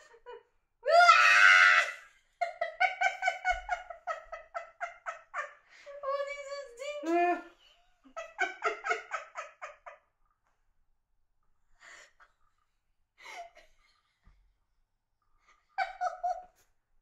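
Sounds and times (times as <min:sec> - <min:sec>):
woman laughing hard: 0:00.0 - 0:05.6, 0:08.2 - 0:10.0, 0:15.8 - 0:16.5.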